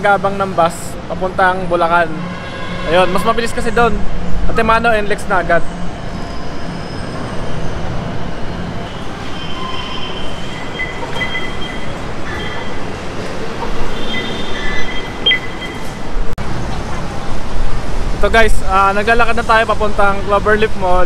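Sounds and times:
train rumbling: 0.0s - 21.0s
high squealing tones: 5.4s - 16.2s.

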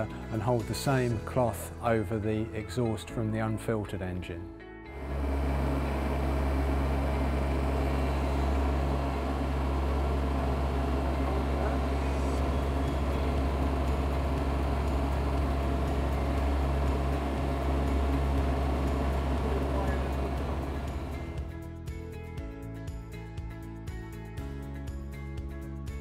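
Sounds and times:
diesel engine idling: 5.0s - 21.5s.

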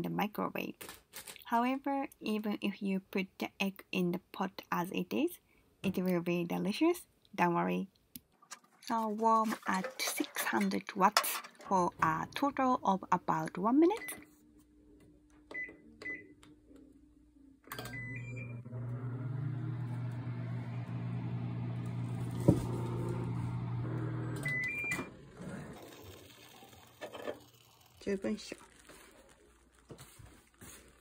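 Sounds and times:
microwave button beeps: 15.5s - 16.4s, 17.7s - 18.7s, 24.4s - 25.1s
microwave oven humming: 15.5s - 27.9s.

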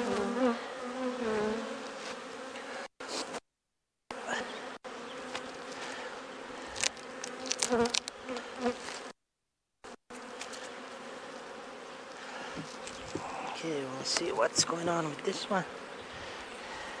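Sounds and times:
bee passing close: 0.0s - 2.9s, 4.1s - 9.1s
honeybees buzzing: 0.0s - 3.4s, 4.1s - 9.2s, 9.9s - 17.0s.

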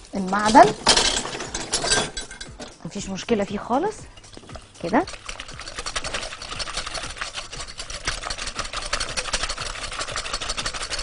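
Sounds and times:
whisk clattering against glass bowl: 3.7s - 11.0s.

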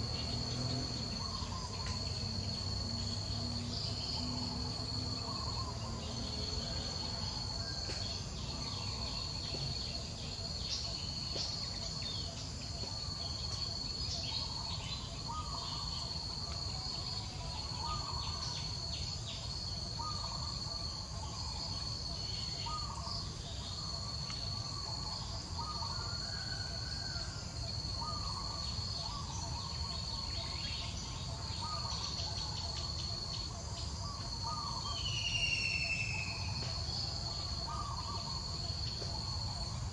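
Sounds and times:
bird call: 34.0s - 39.4s.

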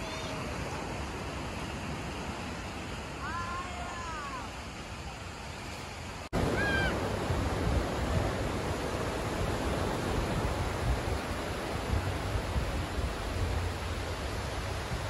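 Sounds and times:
surf washing on a beach: 0.0s - 15.0s
wind buffeting microphone: 6.4s - 15.0s.

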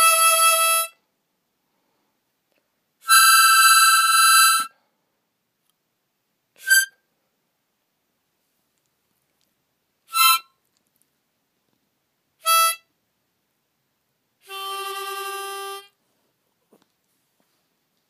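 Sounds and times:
harmonica notes: 0.0s - 1.0s, 3.0s - 4.7s, 10.1s - 10.5s, 12.4s - 12.9s, 14.4s - 16.0s.

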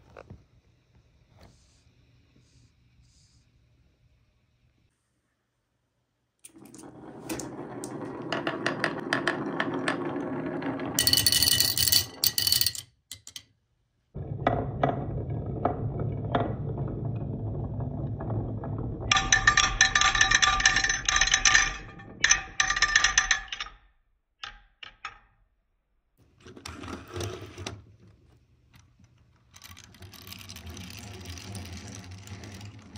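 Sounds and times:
marbles rolling on wooden track: 6.5s - 13.4s, 14.2s - 23.8s, 28.7s - 32.9s
glass marbles clinking: 10.9s - 13.3s, 19.1s - 23.6s.

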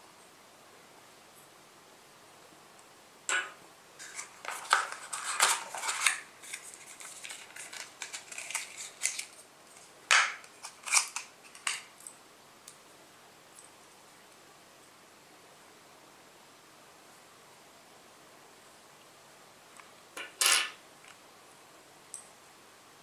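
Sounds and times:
plastic clicks and packaging rustles: 4.0s - 12.2s.

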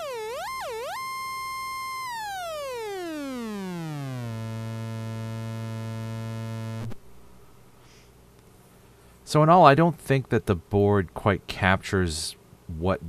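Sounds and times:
electronic test tone sweeping down: 0.0s - 6.9s.

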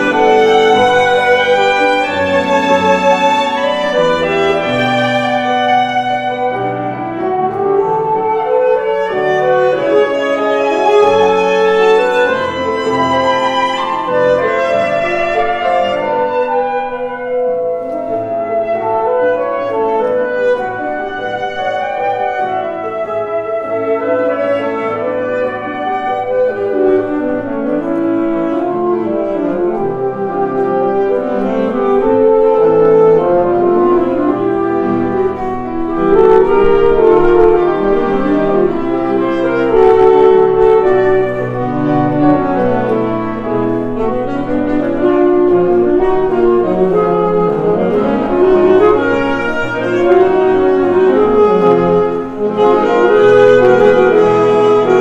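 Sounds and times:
piano: 0.0s - 55.0s
saxophones: 0.0s - 55.0s.

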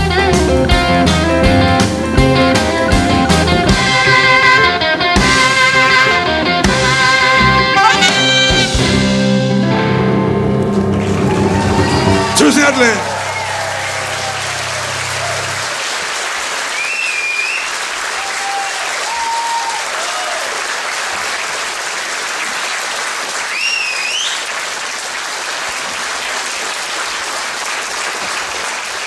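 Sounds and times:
audience applauding: 10.6s - 29.0s
crowd shouts: 11.0s - 15.8s, 18.1s - 20.6s
high whistles: 16.7s - 17.8s, 23.5s - 24.5s.

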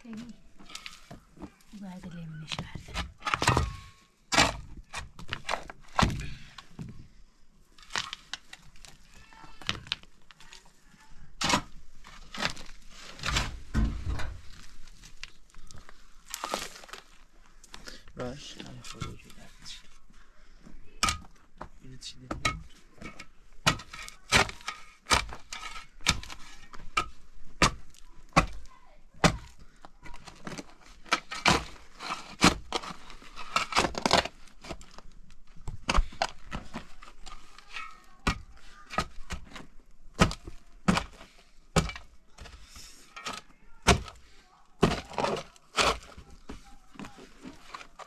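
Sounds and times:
sharp knocks and cracks: 22.2s - 29.6s, 35.6s - 42.5s.

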